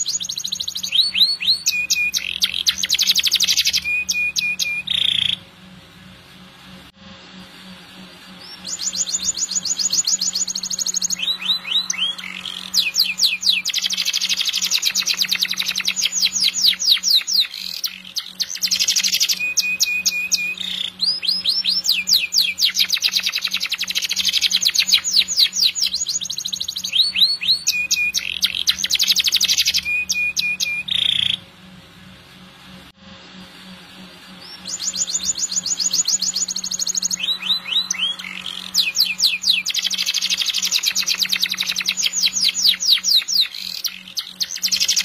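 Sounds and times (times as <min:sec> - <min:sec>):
canary singing trills: 0:00.0 - 0:05.5, 0:08.4 - 0:31.5, 0:34.4 - 0:45.0.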